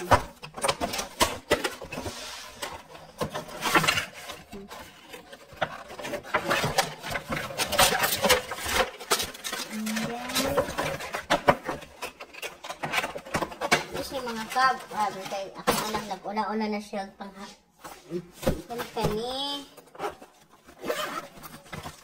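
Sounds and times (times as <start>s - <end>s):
cardboard packaging rustling: 0.0s - 16.3s, 17.8s - 22.0s.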